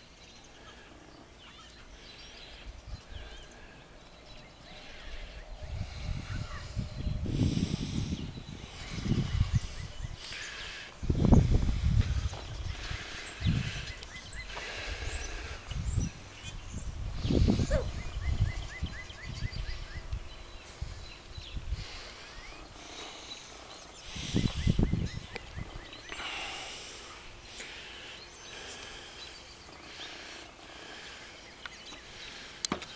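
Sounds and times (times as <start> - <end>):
wind gusts on microphone: 4.7 - 23.1, 23.8 - 26.0.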